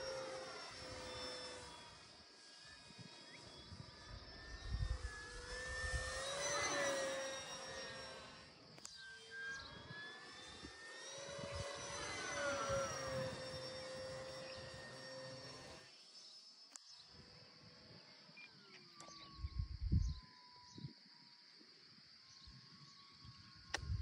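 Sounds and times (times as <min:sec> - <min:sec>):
model plane motor whining: 0:00.0 - 0:16.8
wind rumble on microphone: 0:03.7 - 0:06.2, 0:19.3 - 0:20.9, 0:23.7 - 0:24.0.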